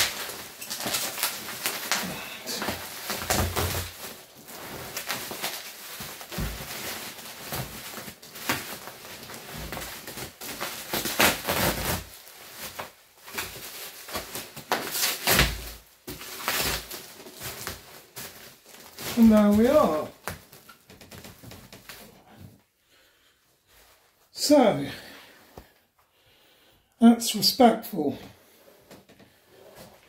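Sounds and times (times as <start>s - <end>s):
bubble wrap rustling and crinkling: 0.0s - 25.8s, 28.2s - 30.0s.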